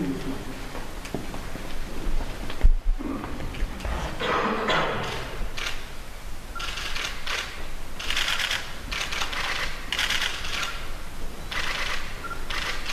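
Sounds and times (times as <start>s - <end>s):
camera shutters clicking: 5.0s - 5.9s, 6.6s - 10.8s, 11.5s - 12.9s.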